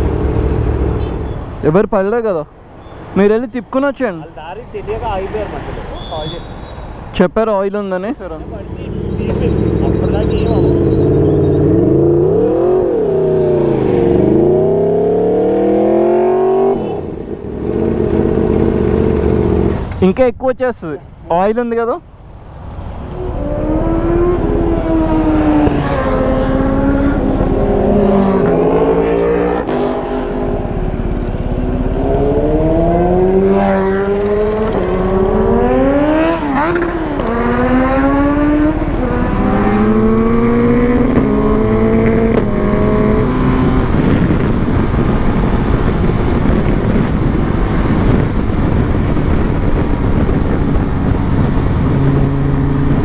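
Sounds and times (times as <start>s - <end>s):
motorcycle accelerating through gears: 8.8s - 20.0s, 23.1s - 53.0s
wind rush: 23.2s - 53.0s.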